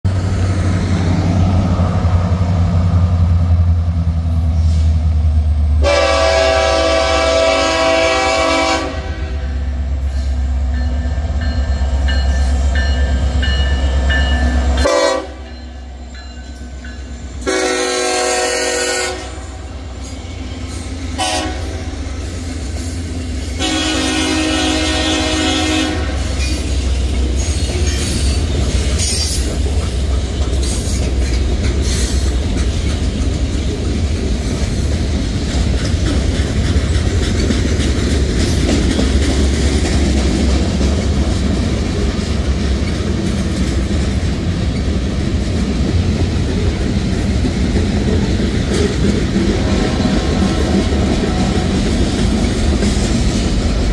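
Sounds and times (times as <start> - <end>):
diesel locomotive rumble: 0.0 - 53.9
train horn blasts: 5.8 - 9.7, 14.8 - 15.6, 17.4 - 19.7, 21.1 - 22.0, 23.5 - 26.8
freight cars clickety-clack: 26.0 - 53.9.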